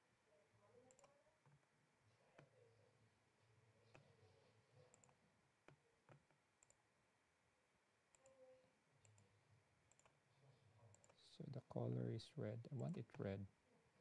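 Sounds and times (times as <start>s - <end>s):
faint computer mouse clicks: 0.9s - 1.7s, 4.9s - 6.8s, 9.9s - 10.2s.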